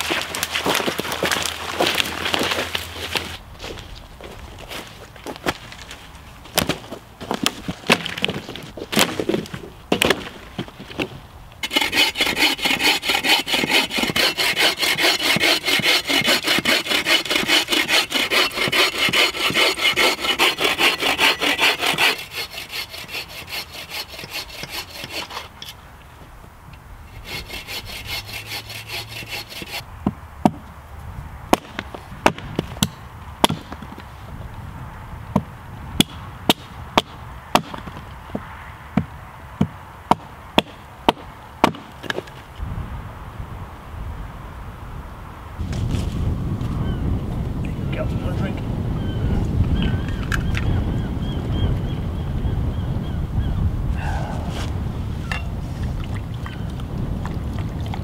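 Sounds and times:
hand saw cutting a branch: 0.0 - 3.3, 11.6 - 25.7, 27.1 - 29.8
dead branches cracking: 0.0 - 11.2
wooden logs knocking: 6.5 - 11.8.

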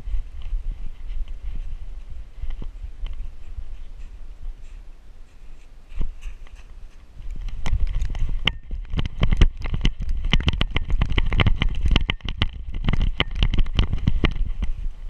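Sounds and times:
wind rumble: 0.0 - 15.0
camera harness knocking and rattling: 7.3 - 14.7.

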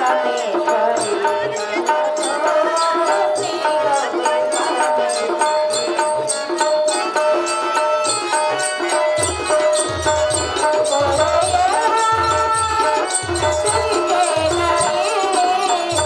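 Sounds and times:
woman singing into microphone: 0.0 - 5.4, 10.4 - 16.0
accompanying melody: 0.0 - 16.0.

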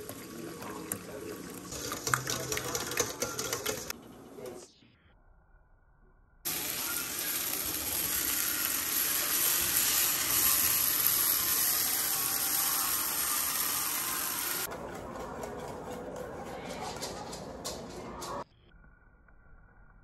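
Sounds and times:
vegetables sizzling in oil: 6.5 - 14.7.

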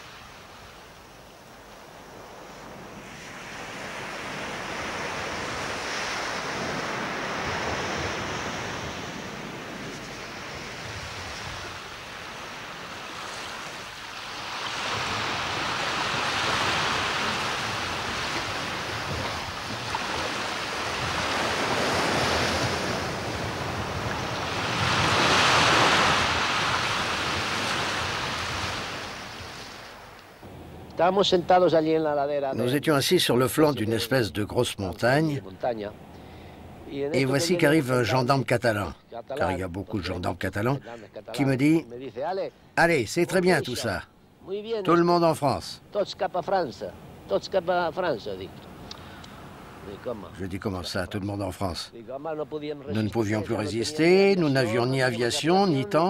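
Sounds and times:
sea waves breaking: 0.0 - 52.1, 52.9 - 56.0.

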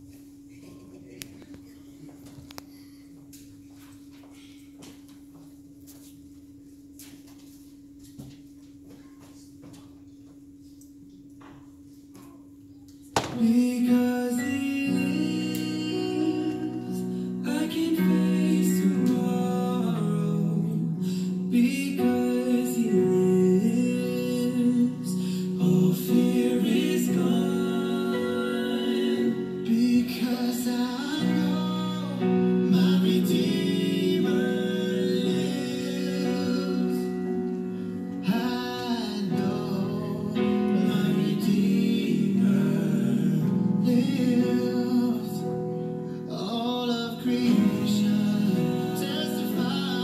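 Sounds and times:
song with singing and guitar: 13.2 - 50.0.

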